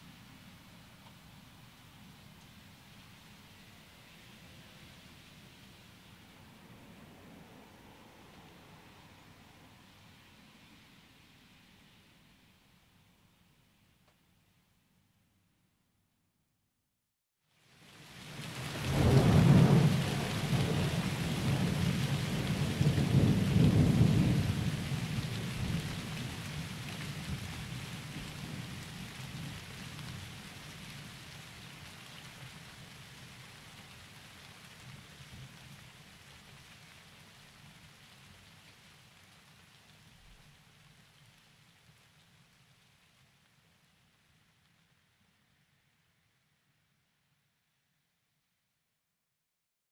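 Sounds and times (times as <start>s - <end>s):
steady rain: 0.0s - 14.6s, 17.5s - 46.9s
thunder rumbling: 18.7s - 26.4s.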